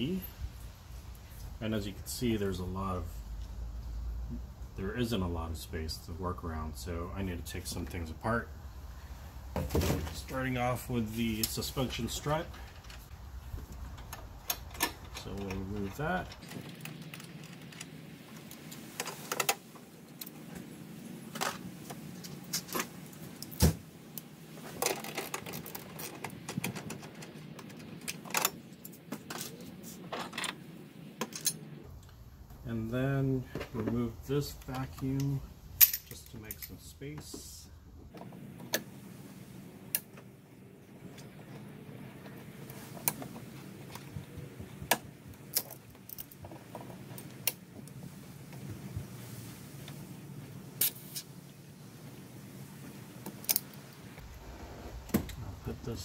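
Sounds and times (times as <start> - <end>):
hand tool clicking on metal parts: 34.6 - 36.8.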